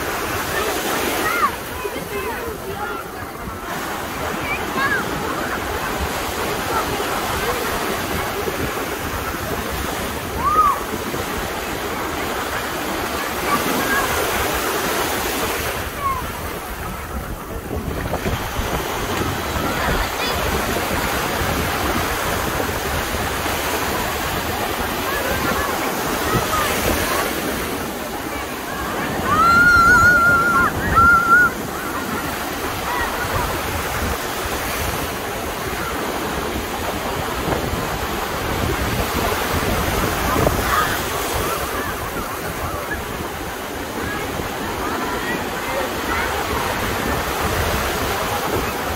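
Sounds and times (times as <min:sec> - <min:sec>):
surf washing around pilings: 0:00.0 - 0:48.9
wind noise on microphone: 0:13.5 - 0:48.9.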